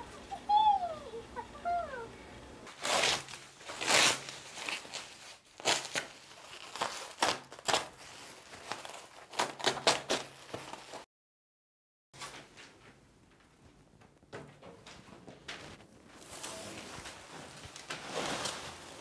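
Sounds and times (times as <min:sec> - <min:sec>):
plastic wrapping crinkling: 0:02.7 - 0:11.0, 0:16.1 - 0:19.0.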